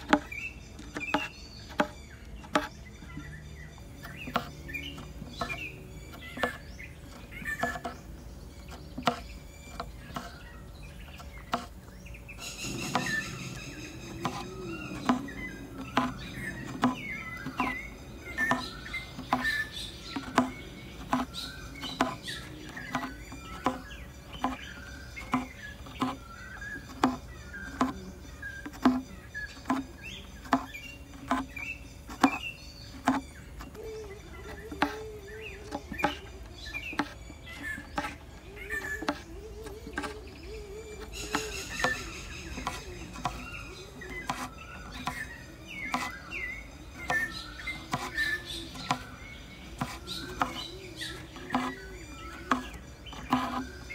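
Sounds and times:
thread squeaky rasp: 0:00.0 - 0:53.9
needle tapping through canvas: 0:12.7 - 0:46.4, 0:47.0 - 0:53.9.

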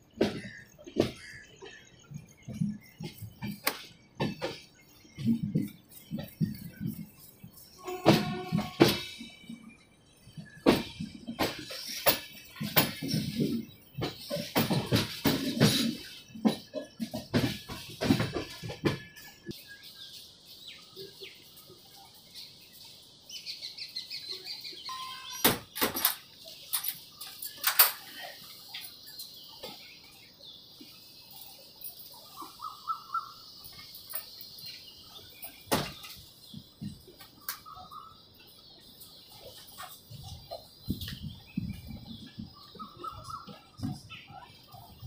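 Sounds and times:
birds chirping: 0:00.0 - 0:45.0.

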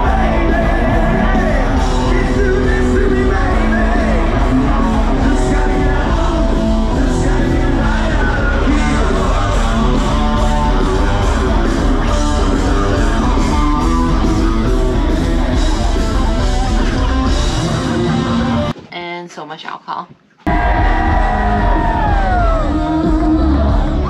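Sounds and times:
electric guitar: 0:00.0 - 0:18.8
rock band playing loud: 0:00.0 - 0:18.8, 0:20.5 - 0:24.0.

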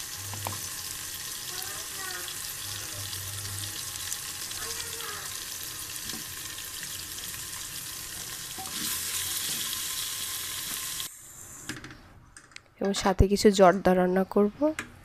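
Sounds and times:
spices sizzling in oil: 0:00.0 - 0:11.2.

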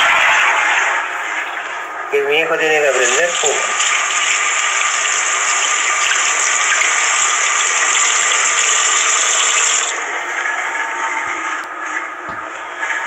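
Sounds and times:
running water gushing: 0:02.9 - 0:10.0.

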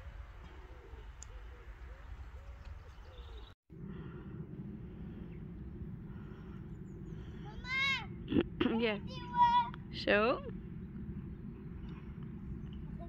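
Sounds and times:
steady low rumble: 0:00.0 - 0:13.0
dove cooing: 0:00.4 - 0:03.5.

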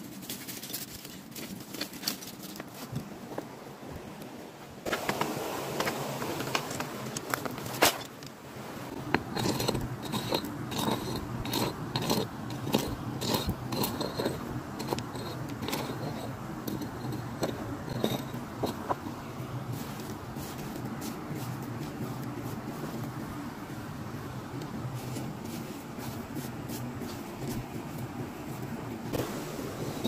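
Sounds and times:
foil packet crinkling: 0:00.0 - 0:03.0
scraping on sand and gravel: 0:00.0 - 0:03.5, 0:08.9 - 0:23.3, 0:24.8 - 0:30.0.

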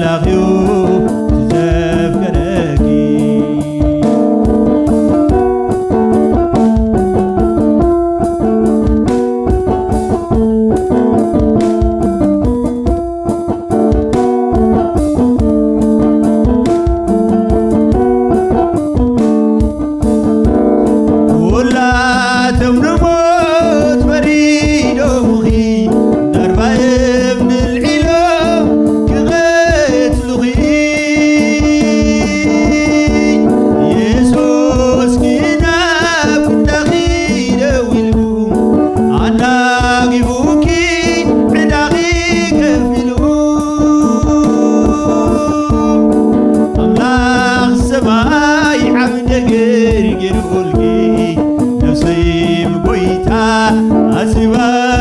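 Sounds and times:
man singing a hymn: 0:00.0 - 0:04.5, 0:21.3 - 0:55.0
held instrumental chords: 0:00.0 - 0:55.0.

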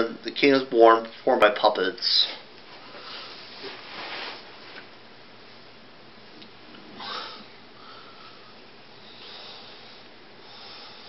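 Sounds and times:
person breathing: 0:07.0 - 0:11.0.

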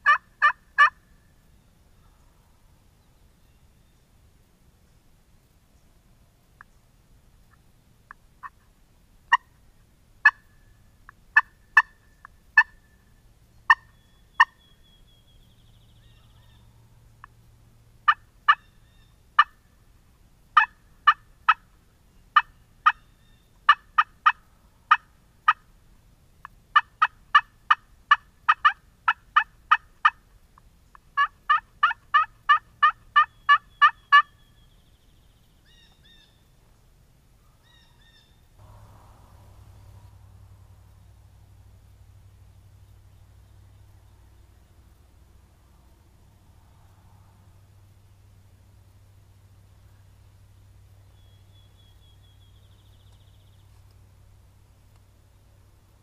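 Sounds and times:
turkey yelping: 0:00.0 - 0:01.0, 0:10.2 - 0:10.5, 0:11.4 - 0:12.0, 0:12.6 - 0:12.8, 0:13.7 - 0:14.6, 0:18.1 - 0:19.6, 0:20.6 - 0:21.6, 0:22.4 - 0:25.6, 0:26.8 - 0:30.2, 0:31.2 - 0:34.4, 0:37.6 - 0:38.4.

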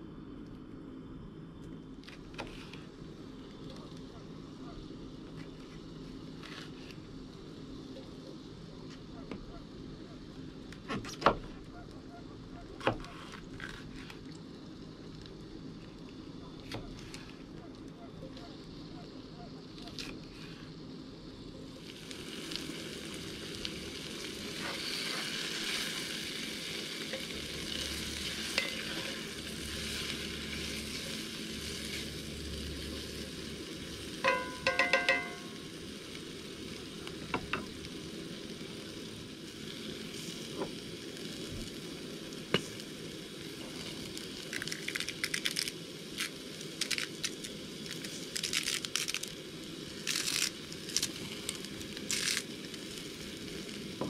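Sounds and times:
vegetables sizzling in a skillet: 0:21.2 - 0:54.0
ringing metallic clinks: 0:34.2 - 0:35.6.

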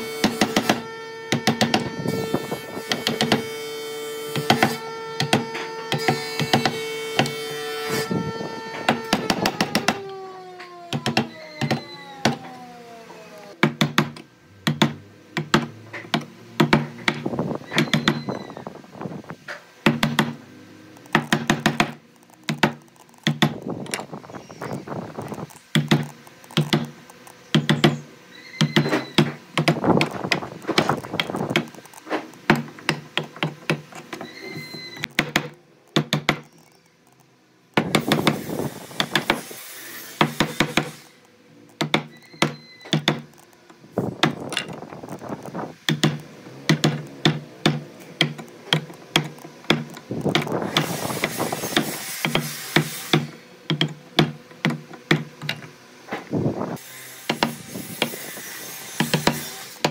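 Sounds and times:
rasping of sawing or scraping: 0:38.0 - 0:41.2, 0:50.2 - 0:53.4, 0:56.7 - 0:59.9.

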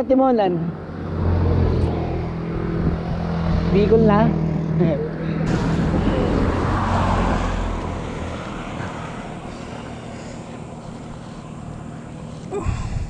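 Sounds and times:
vehicle engine humming: 0:00.0 - 0:13.0.

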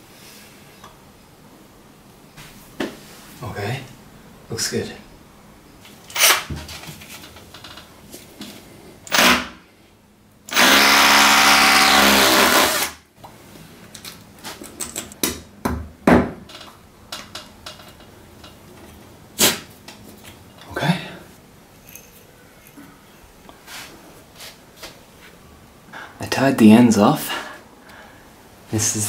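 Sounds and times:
hammer drill boring into wall: 0:06.1 - 0:06.5, 0:09.1 - 0:09.6, 0:10.5 - 0:13.0.

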